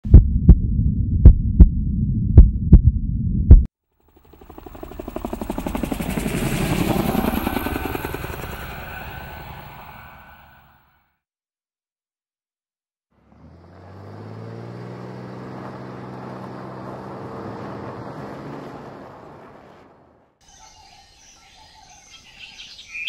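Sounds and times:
heartbeat thumps: 0:00.0 - 0:03.7
low hum: 0:00.0 - 0:10.5.

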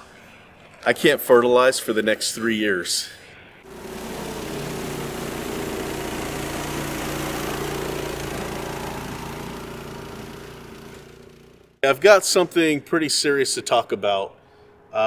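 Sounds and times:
engine idling: 0:03.7 - 0:11.8.

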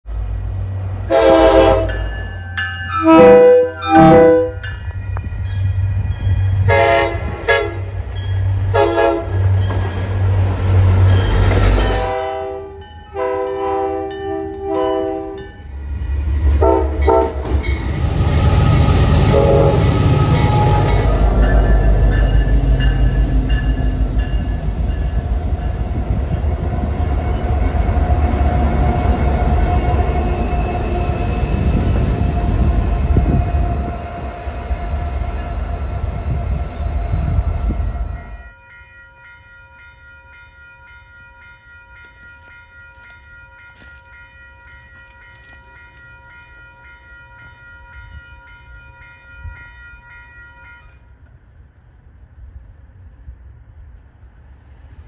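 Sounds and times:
train horn: 0:01.1 - 0:02.1, 0:02.9 - 0:04.7, 0:06.6 - 0:08.0, 0:08.7 - 0:09.5, 0:11.8 - 0:15.4, 0:16.6 - 0:17.5, 0:18.4 - 0:21.3, 0:49.4 - 0:51.1
steady high tones: 0:17.6 - 0:41.5.

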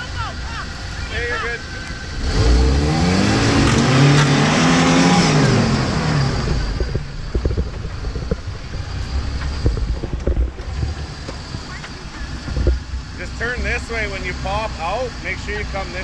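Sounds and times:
engine revving hard: 0:00.8 - 0:07.0
knocks and clunks: 0:06.4 - 0:13.1.

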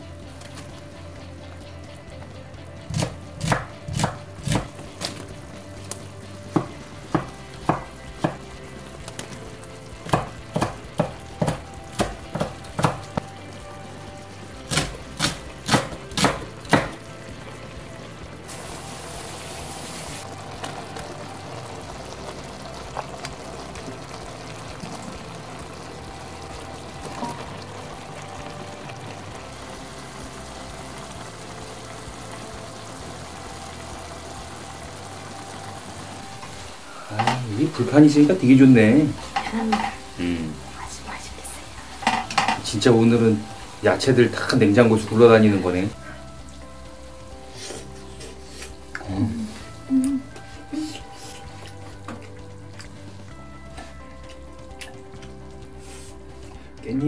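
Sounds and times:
stir-fry sizzling in a wok: 0:00.0 - 0:56.8
cleaver chopping on wooden board: 0:02.9 - 0:04.7.

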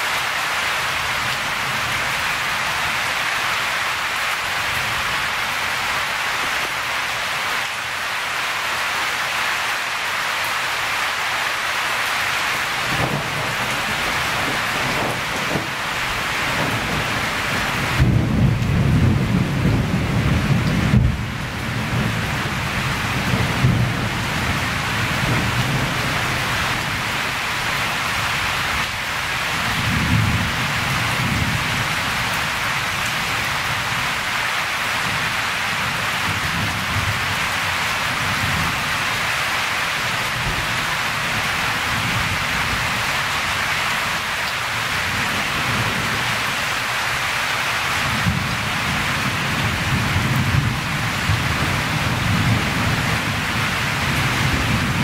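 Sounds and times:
heavy rain hissing: 0:00.0 - 0:55.0
thunder rumbling: 0:12.8 - 0:34.0, 0:48.1 - 0:55.0.

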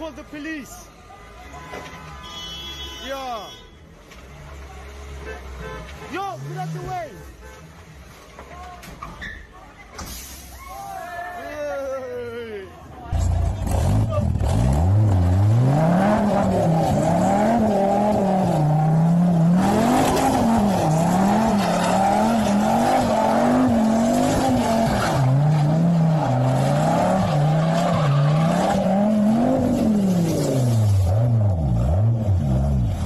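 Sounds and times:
tyres squealing: 0:19.9 - 0:30.3.

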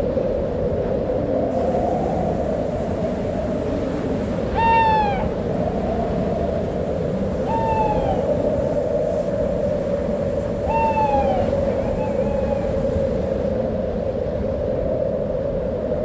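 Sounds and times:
storm wind blowing: 0:00.0 - 0:16.0
owl calling: 0:04.4 - 0:05.5, 0:07.3 - 0:13.5.

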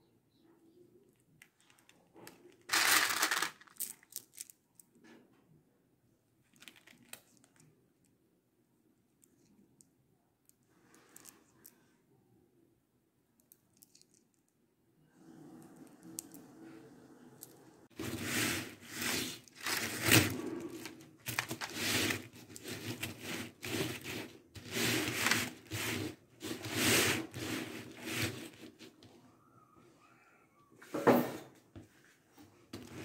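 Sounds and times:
rustling crinkling netting: 0:02.3 - 0:04.5, 0:17.9 - 0:28.8.

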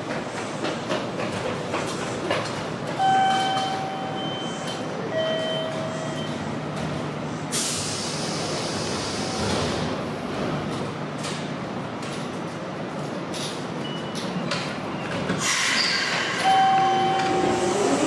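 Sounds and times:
loud hiss of air: 0:07.5 - 0:09.9, 0:15.4 - 0:16.4.

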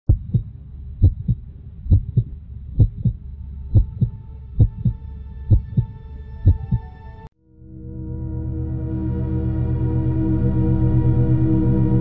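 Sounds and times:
heartbeat thumps: 0:00.1 - 0:06.9
steady low drone: 0:00.1 - 0:12.0
sustained higher tones: 0:03.4 - 0:12.0.

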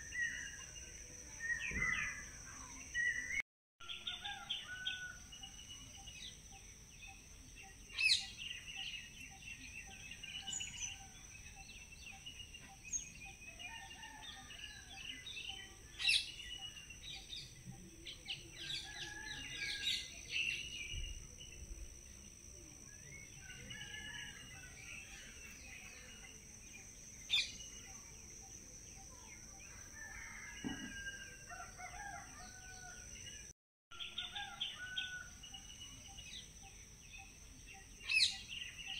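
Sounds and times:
birds chirping and calling: 0:00.0 - 0:21.5, 0:33.9 - 0:38.9.

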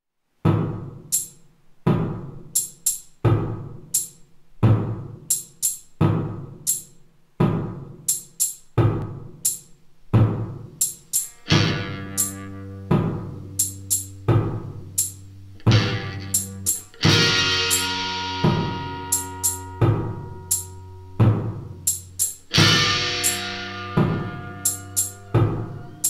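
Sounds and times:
sharp cymbal hits: 0:10.8 - 0:26.0
held droning note: 0:11.4 - 0:26.0.

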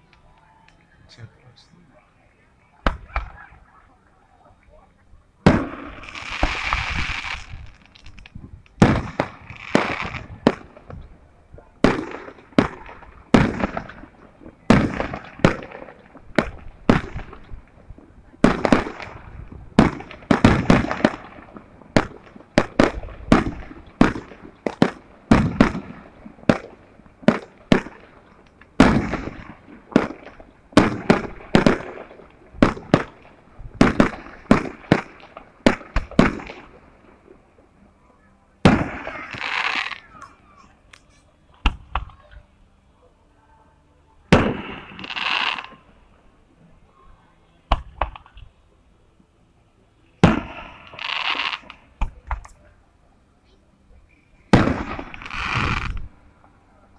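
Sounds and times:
fireworks bangs: 0:05.4 - 0:11.1, 0:11.8 - 0:37.1, 0:38.6 - 0:40.2, 0:44.3 - 0:46.0, 0:50.2 - 0:52.4, 0:54.5 - 0:56.1.

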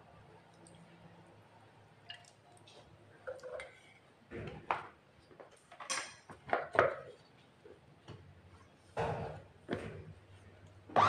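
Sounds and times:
utensils knocking and clinking: 0:05.8 - 0:07.0.

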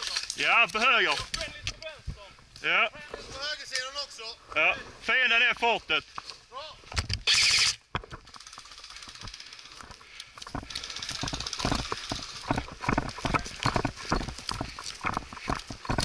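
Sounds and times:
footsteps running on forest ground: 0:09.0 - 0:16.0.

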